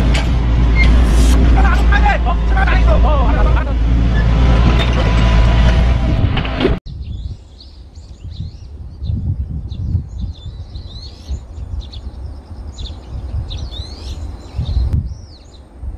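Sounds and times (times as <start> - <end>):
low uneven rumble: 0.0 - 6.8
small birds chirping: 6.9 - 15.7.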